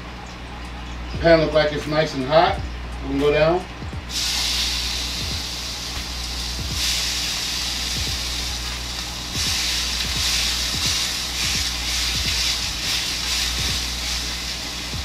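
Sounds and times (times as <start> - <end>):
steaks sizzling in a pan: 4.1 - 15.0.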